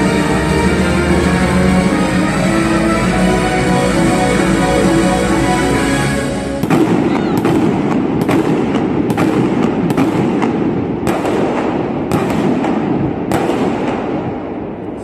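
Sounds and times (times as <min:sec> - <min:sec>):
fireworks bangs: 0:06.6 - 0:15.0.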